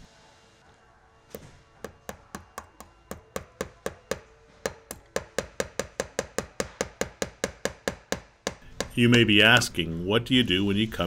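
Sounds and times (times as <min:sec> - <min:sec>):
hammer tapping metal nails: 0:01.8 - 0:09.7.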